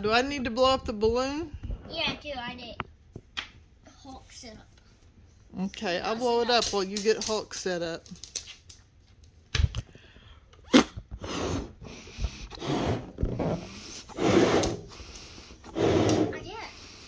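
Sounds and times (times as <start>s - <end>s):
breath puffs into balloon: 10.6s - 17.0s.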